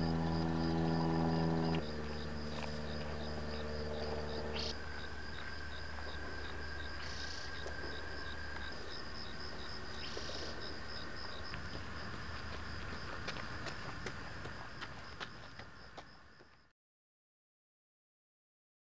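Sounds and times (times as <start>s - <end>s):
low steady hum: 0.0s - 14.9s
crickets chirping: 0.0s - 16.7s.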